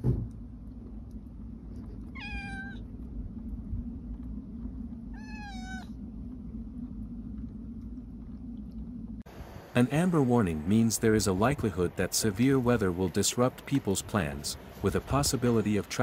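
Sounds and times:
brief thump: 0.0s - 0.4s
steady low rumble: 0.0s - 16.0s
cat meowing: 2.0s - 2.9s, 5.1s - 6.0s.

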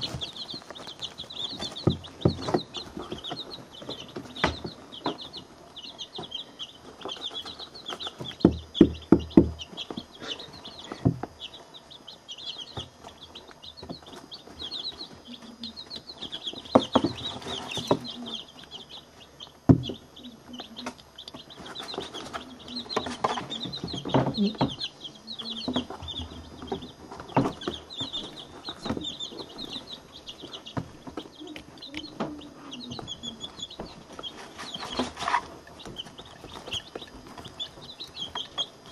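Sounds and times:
chicks peeping: 0.0s - 38.9s
sharp knocks near microphone: 19.6s - 20.0s.

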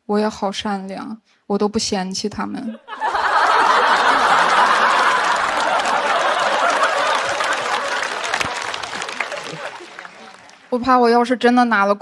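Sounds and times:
audience laughing and applauding: 2.9s - 10.7s.

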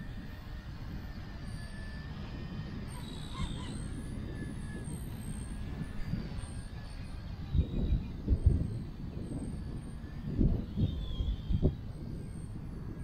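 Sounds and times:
distant toy helicopter whine: 0.0s - 13.0s
wind buffeting microphone: 0.0s - 13.0s.

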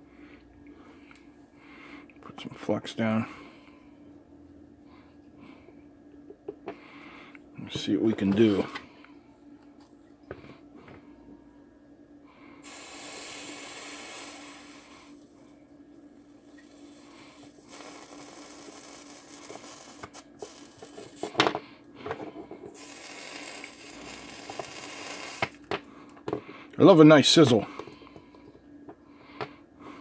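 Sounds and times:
flux sizzling under soldering iron: 12.6s - 15.3s, 16.6s - 21.5s, 22.7s - 25.7s.

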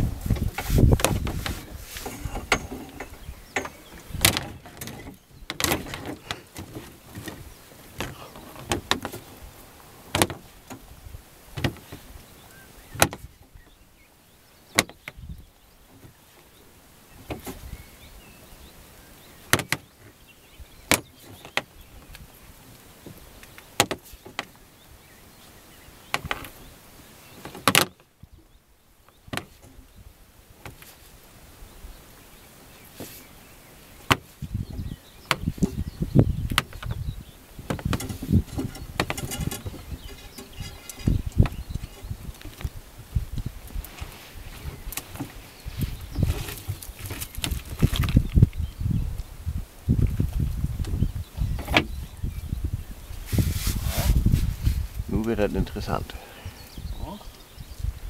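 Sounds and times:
net knocking and clattering in boat: 0.3s - 9.4s, 10.1s - 10.8s, 11.5s - 12.1s, 13.0s - 13.5s, 27.4s - 28.0s, 29.3s - 29.8s, 37.6s - 42.6s.

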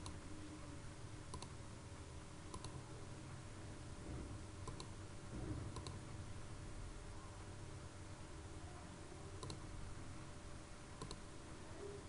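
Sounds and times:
faint steady hum: 0.0s - 12.0s
mouse button clicking: 9.4s - 9.6s, 11.0s - 11.2s.

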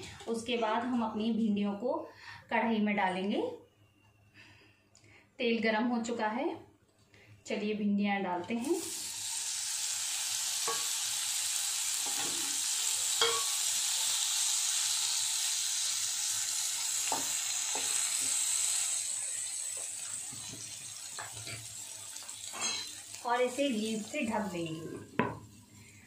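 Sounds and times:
okra sizzling in hot oil: 8.5s - 26.0s.

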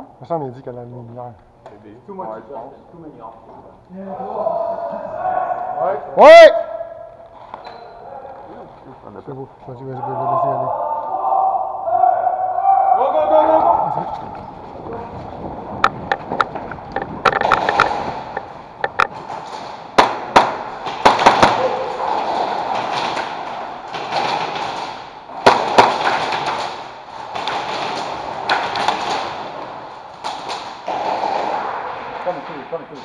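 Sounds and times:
pellets striking hard surfaces: 15.8s - 33.0s
airsoft guns firing: 17.2s - 32.2s.

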